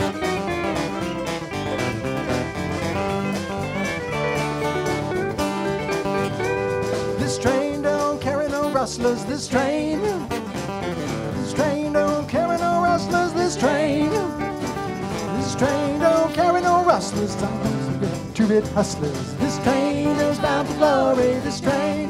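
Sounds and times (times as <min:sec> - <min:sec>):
lead melody sliding in pitch: 0:00.0 - 0:07.2
live band playing country song: 0:00.0 - 0:22.0.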